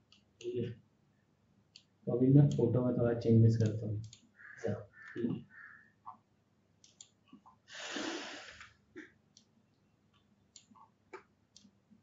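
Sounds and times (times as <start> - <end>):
computer mouse clicks: 1.7 - 1.9, 3.6 - 6.2, 6.8 - 7.6, 8.6 - 11.8
breath into microphone: 7.7 - 8.7.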